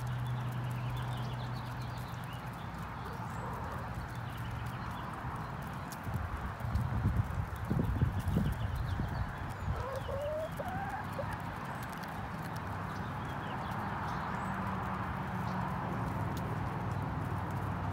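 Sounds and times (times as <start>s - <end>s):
beaks pecking at grain: 0.0s - 17.9s
hens clucking softly: 9.7s - 11.4s.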